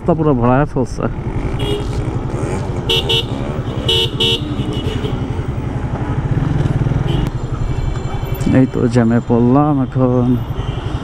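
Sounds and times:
motorcycle engine running: 1.2s - 8.2s.

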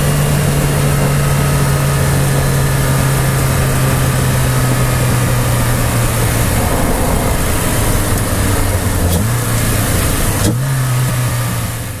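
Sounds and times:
car engine at steady revs: 0.0s - 7.2s, 7.8s - 12.0s
wind and road noise: 0.0s - 12.0s.

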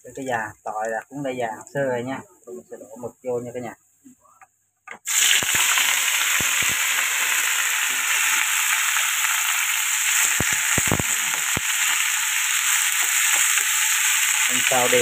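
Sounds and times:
food sizzling in a wok: 5.0s - 15.0s
chopsticks tapping a pan: 12.9s - 13.7s.

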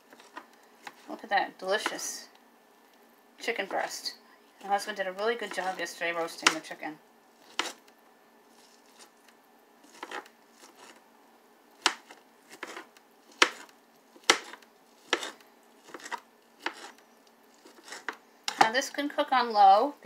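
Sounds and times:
knife chopping on cutting board: 11.8s - 16.9s.

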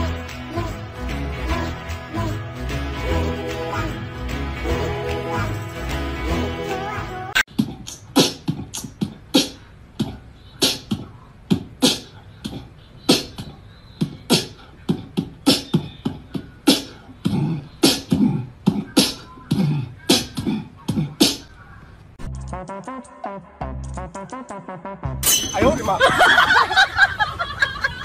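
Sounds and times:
person beatboxing: 6.6s - 21.6s.

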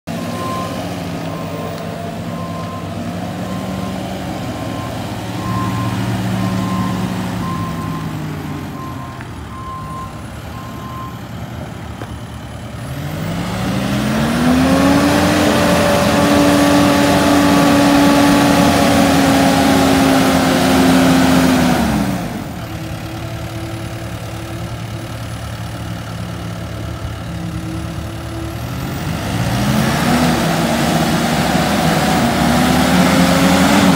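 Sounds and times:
reversing alarm beeping: 0.1s - 11.4s
diesel engine running: 0.1s - 33.9s.

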